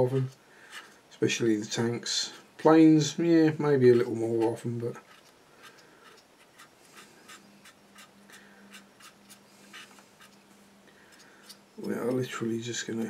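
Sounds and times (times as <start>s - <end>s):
cotton bud rubbing on plastic: 4.0s - 10.4s.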